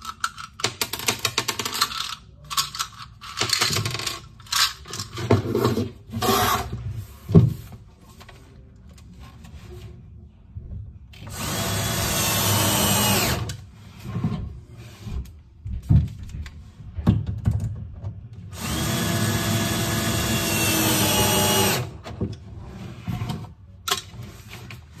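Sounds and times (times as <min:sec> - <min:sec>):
power drill running: 0:11.3 - 0:13.5, 0:18.5 - 0:22.0.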